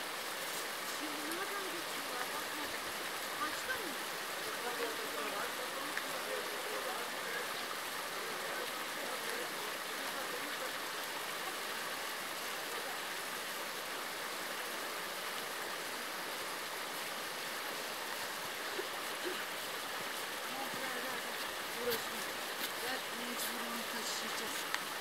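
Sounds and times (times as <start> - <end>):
creek flowing over stones: 0.0 - 25.0.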